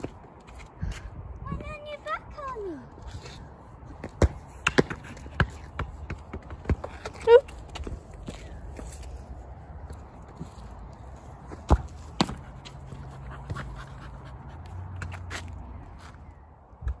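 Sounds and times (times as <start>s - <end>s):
dog footsteps and scuffs: 9.9s - 16.2s.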